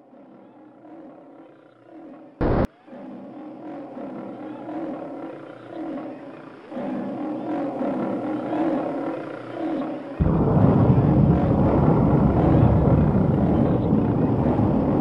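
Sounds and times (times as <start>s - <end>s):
loud low rumble: 10.2s - 15.0s
monster growling roars: 10.2s - 15.0s.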